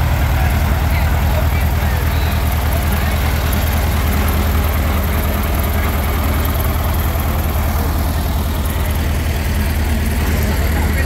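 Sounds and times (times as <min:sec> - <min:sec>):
heavy vehicle engine idling: 0:00.0 - 0:11.0.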